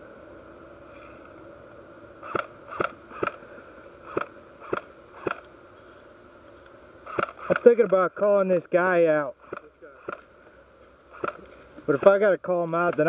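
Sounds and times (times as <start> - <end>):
sharp snaps: 2.2 - 3.4, 4.1 - 5.5, 7.0 - 8.7, 9.4 - 10.3, 11.1 - 12.2.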